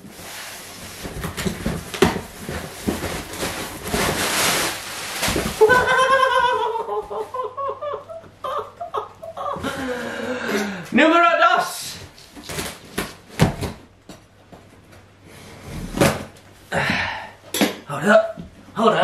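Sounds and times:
packing tape tearing: 0:01.1 - 0:05.8, 0:12.2 - 0:13.8
man laughing: 0:05.6 - 0:10.7.

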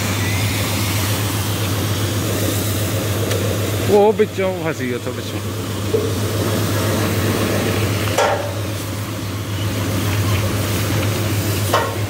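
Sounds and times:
engine running: 0:00.0 - 0:12.0
hose water spraying: 0:00.0 - 0:12.0.

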